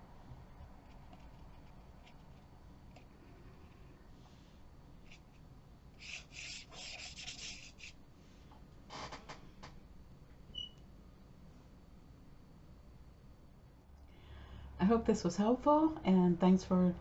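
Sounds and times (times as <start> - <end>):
brush bristles scratching paper: 6.0 - 8.0
brief high squeak: 10.6 - 10.8.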